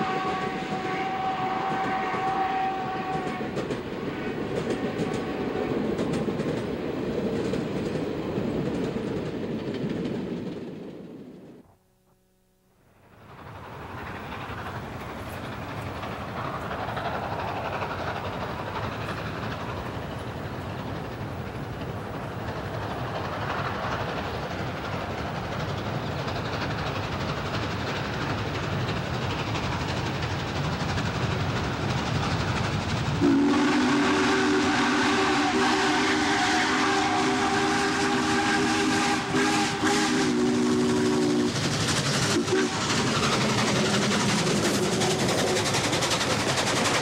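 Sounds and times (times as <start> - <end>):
steam whistle: 0.0 - 3.6, 33.2 - 41.6, 42.3 - 42.9
steam locomotive rumbling: 0.0 - 11.7, 12.9 - 47.0.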